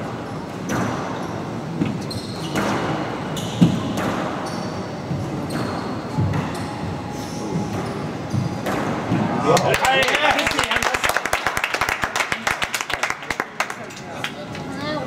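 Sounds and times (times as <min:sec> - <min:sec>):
sneakers squeaking on wooden floor: 0:00.4 - 0:09.4.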